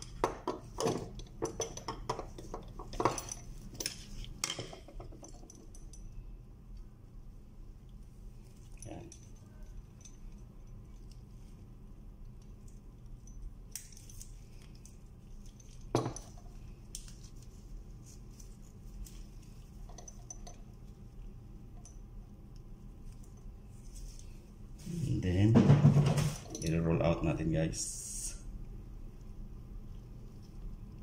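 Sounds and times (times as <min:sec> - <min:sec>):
metal parts clicking and clinking: 0:00.0 - 0:06.2, 0:08.6 - 0:11.2, 0:12.4 - 0:17.3, 0:18.4 - 0:20.7
steady low hum: 0:00.0 - 0:31.0.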